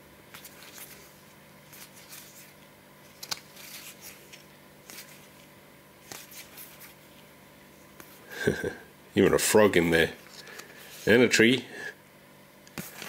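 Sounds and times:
low steady hum: 0:00.0 - 0:13.0
playing cards rustling and tapping: 0:00.3 - 0:07.3, 0:12.7 - 0:13.0.

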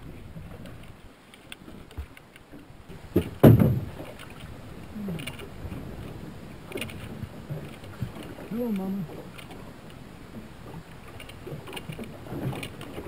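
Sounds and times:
knocks in an aluminium boat: 0:02.9 - 0:04.2
loud thump: 0:03.2 - 0:03.9.

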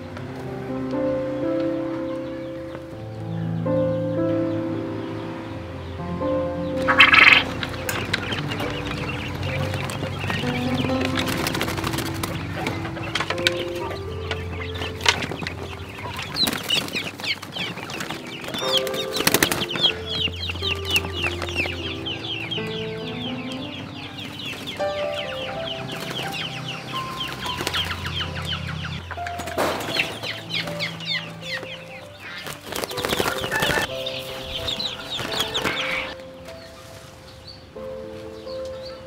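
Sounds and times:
background music with simple melody: 0:00.0 - 0:39.0
quail chirping: 0:06.6 - 0:39.0
cage clattering knocks: 0:25.9 - 0:31.2.

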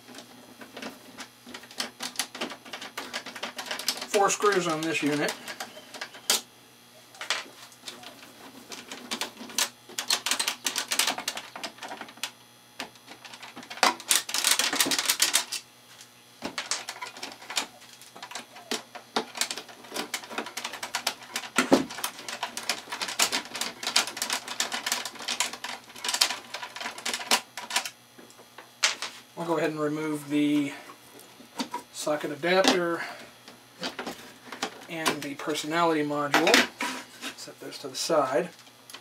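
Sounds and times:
screws rattling on metal case: 0:00.0 - 0:06.4, 0:07.2 - 0:15.6, 0:16.4 - 0:28.0.

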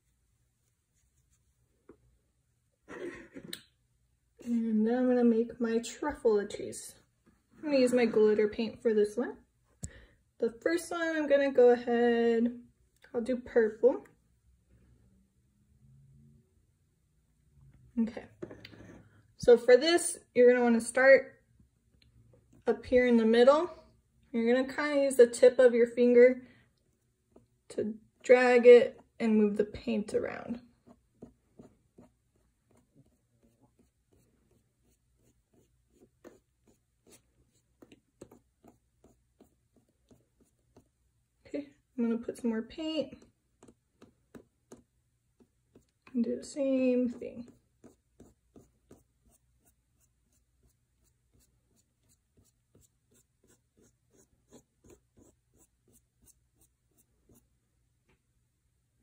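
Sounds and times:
fingertip rubbing paint on paper: 0:00.0 - 0:01.7, 0:30.5 - 0:41.0, 0:47.0 - 0:57.5.

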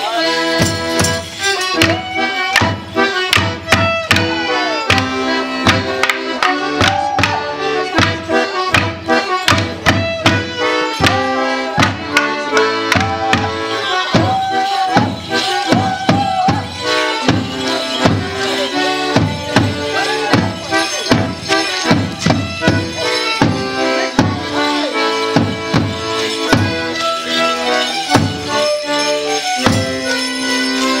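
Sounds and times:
squeezebox folk melody: 0:00.0 - 0:31.0
drum beat: 0:00.6 - 0:24.6, 0:25.3 - 0:26.9
wooden sticks clacking: 0:05.7 - 0:07.4.

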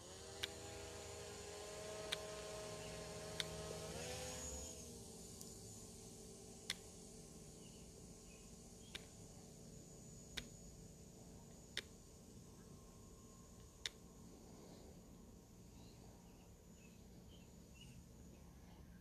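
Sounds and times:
drone propellers humming: 0:00.0 - 0:19.0
sharp clicks: 0:00.3 - 0:00.6, 0:02.0 - 0:02.4, 0:03.2 - 0:03.6, 0:06.6 - 0:07.0, 0:08.8 - 0:09.2, 0:10.3 - 0:10.6, 0:11.5 - 0:12.0, 0:13.6 - 0:14.0.

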